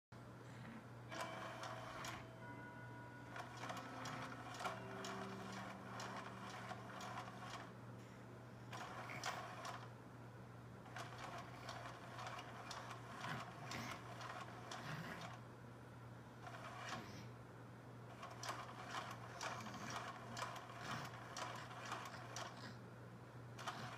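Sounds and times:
faint steady hum: 0:00.2 - 0:23.9
toy motor fast clicking: 0:03.4 - 0:07.7, 0:08.7 - 0:09.9, 0:10.9 - 0:15.4, 0:16.4 - 0:17.3, 0:18.1 - 0:22.8, 0:23.6 - 0:23.9.

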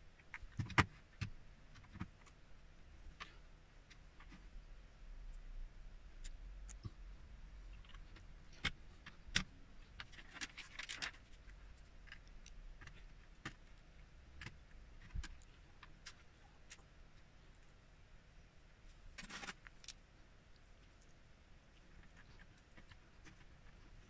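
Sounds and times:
loose plastic pieces clattering: 0:08.6 - 0:11.3, 0:19.2 - 0:20.0.

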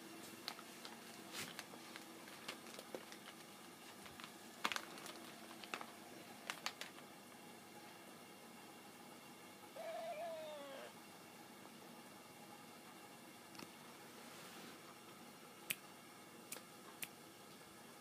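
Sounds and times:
plastic packet crinkling: 0:00.5 - 0:07.0.

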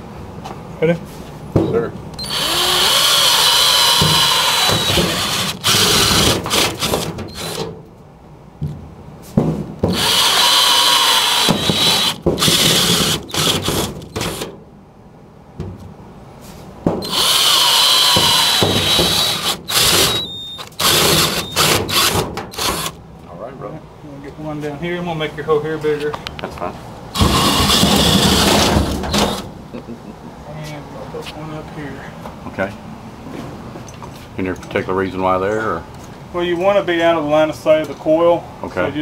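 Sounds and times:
power drill whining through sheet metal: 0:02.2 - 0:07.7, 0:09.9 - 0:14.5, 0:17.0 - 0:23.0, 0:27.1 - 0:29.5.

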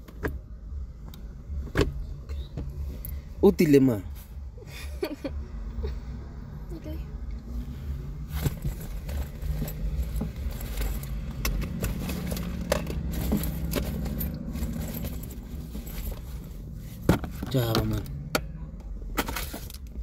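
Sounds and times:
objects rattling in a bag: 0:08.3 - 0:16.5.

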